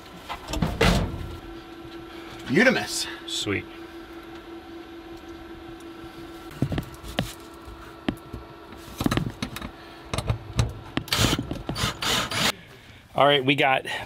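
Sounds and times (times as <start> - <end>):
steady hum: 0.0 - 14.0
cordless drill driving screws: 11.1 - 12.5.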